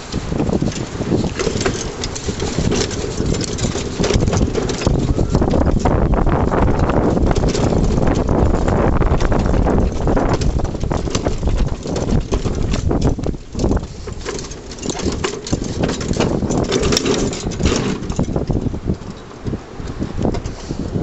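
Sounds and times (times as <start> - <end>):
cart rattling and knocking: 0.0 - 21.0
hooves clip-clopping: 0.0 - 21.0
wind rumble on microphone: 0.0 - 21.0.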